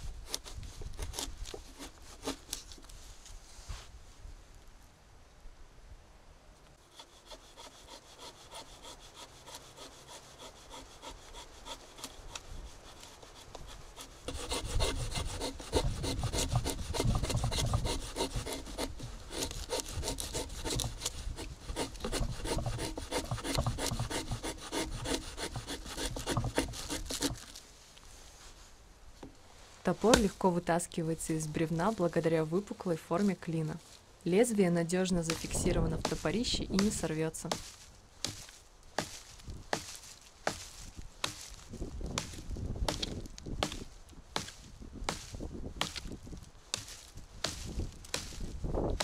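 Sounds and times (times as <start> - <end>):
blade scraping wooden stick: 0.2 - 3.0, 6.9 - 27.6, 35.1 - 41.6.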